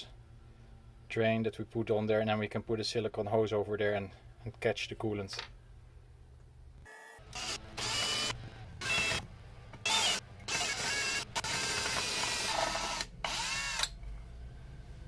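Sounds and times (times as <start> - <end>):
cordless drill boring into metal: 7.4 - 9.2, 9.8 - 13.9.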